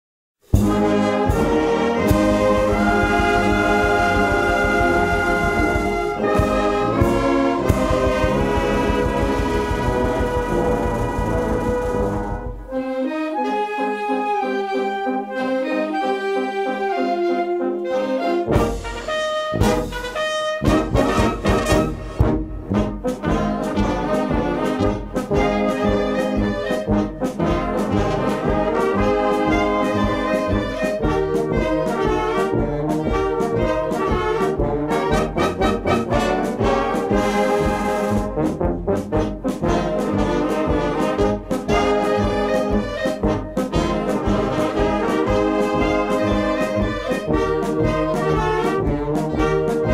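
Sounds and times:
brass band playing: 0.4s - 49.9s
tuba bass: 0.4s - 49.9s.

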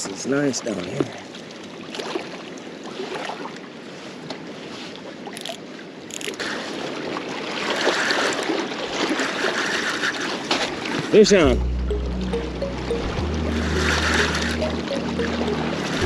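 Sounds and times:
waves lapping against rocks: 0.8s - 11.2s.

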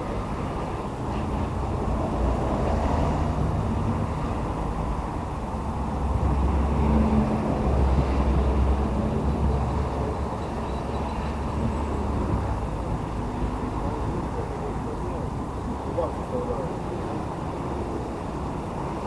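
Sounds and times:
low rumble of road traffic: 0.0s - 19.0s.

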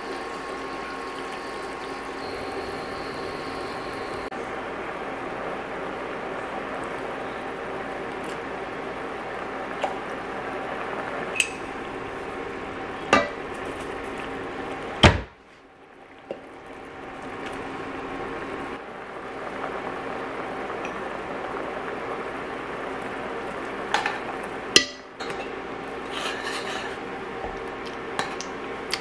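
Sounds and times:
sauce simmering and sizzling: 0.0s - 28.9s
utensils knocking on pot: 13.1s - 13.4s.

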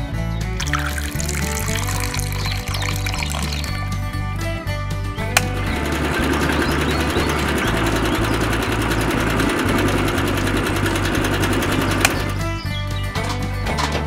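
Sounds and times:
toy mixer motor whirring: 0.6s - 3.8s
sharp click: 5.4s - 5.6s.

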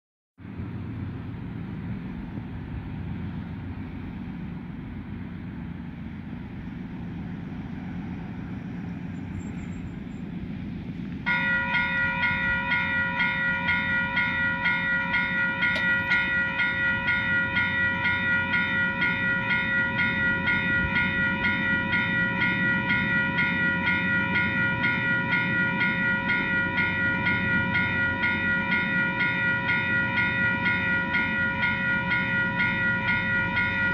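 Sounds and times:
train rumble: 0.4s - 33.9s
level crossing warning bells: 11.2s - 33.9s.

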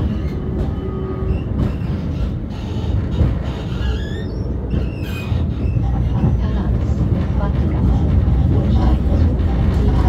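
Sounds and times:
high squeaks of tram wheels: 0.0s - 6.6s
tram wheels rumbling on rails: 0.0s - 10.0s.

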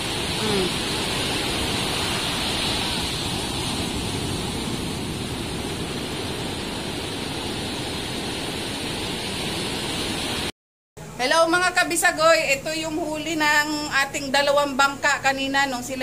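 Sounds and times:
sea surf on shore: 0.0s - 10.5s
wind rumbling on microphone: 0.0s - 10.5s.

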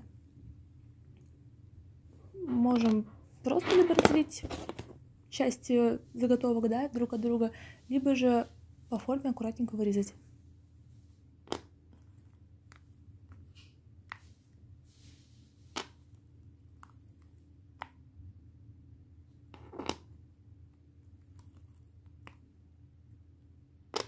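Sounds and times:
faint low hum: 0.0s - 24.0s
resin pieces clicking and tapping: 11.4s - 14.3s.

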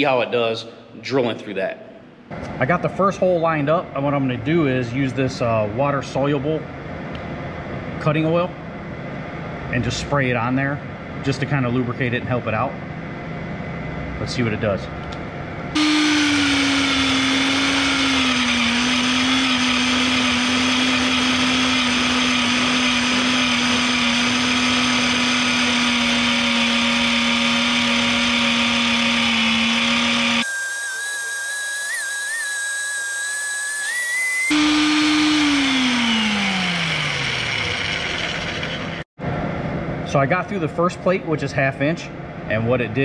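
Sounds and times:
drill motor humming and whining: 15.8s - 39.1s.

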